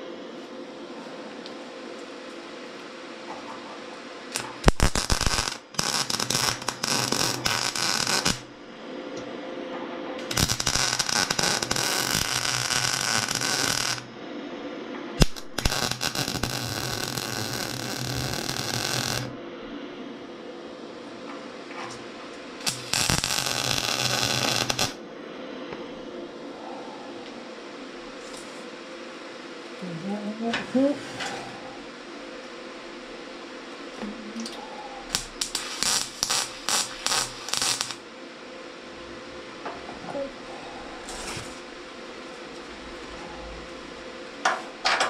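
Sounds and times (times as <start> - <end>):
steady low hum: 0.0 - 45.0
welding arc crackling: 4.3 - 8.5, 10.2 - 14.1, 15.2 - 19.4, 21.9 - 25.0, 35.1 - 38.1, 41.0 - 45.0.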